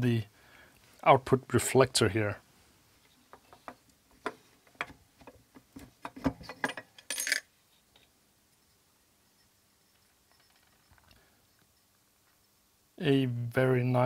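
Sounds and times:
small clicks and knocks: 0:03.0 - 0:08.2, 0:09.9 - 0:12.4.

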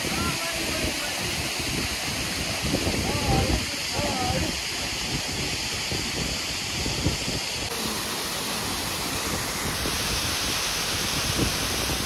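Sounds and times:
waterfall rushing: 0:00.0 - 0:12.0
water splashing onto rocks: 0:07.7 - 0:12.0.

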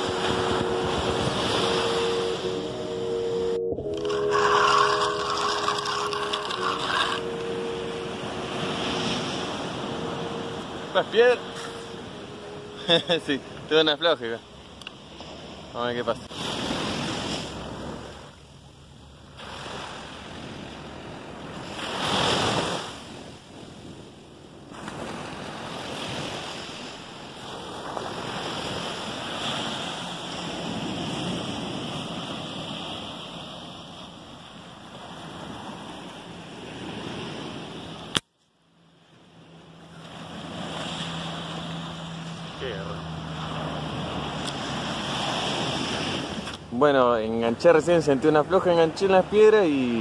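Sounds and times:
wind on microphone: 0:00.0 - 0:12.8
small waves washing up beach: 0:00.0 - 0:18.4, 0:19.3 - 0:38.2, 0:39.0 - 0:50.0.

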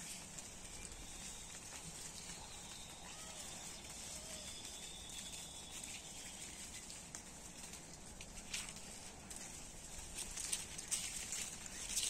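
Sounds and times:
faint rising-and-falling calls: 0:00.6 - 0:07.0.

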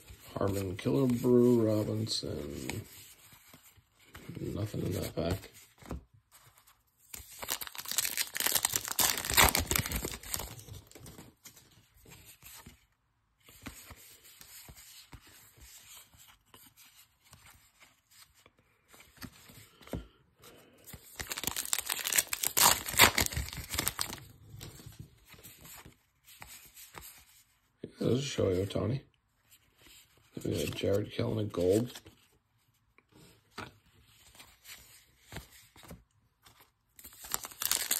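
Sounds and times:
cards rustling: 0:00.0 - 0:12.8, 0:13.4 - 0:28.6, 0:29.4 - 0:32.4, 0:33.2 - 0:37.9
wrappers torn and crinkled: 0:07.4 - 0:11.0, 0:21.2 - 0:24.2, 0:37.1 - 0:37.9.

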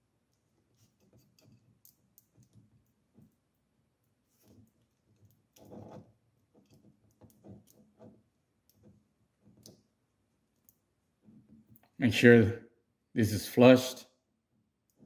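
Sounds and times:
hands rustling wires: 0:00.0 - 0:12.0.

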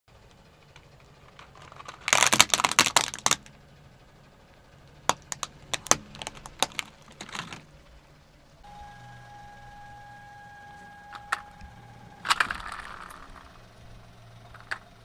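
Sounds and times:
plastic toys cracking under tyre: 0:00.7 - 0:03.6, 0:05.1 - 0:07.7.

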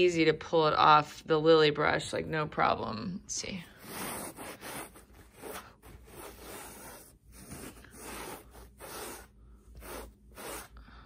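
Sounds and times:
pet hair tool rubbing upholstery: 0:03.8 - 0:10.8.

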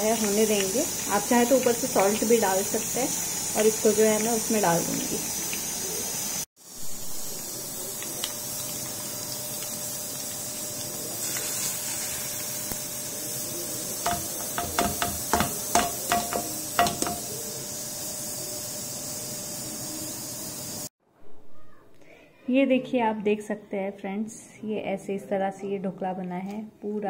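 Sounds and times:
hot oil sizzling: 0:00.0 - 0:20.9.

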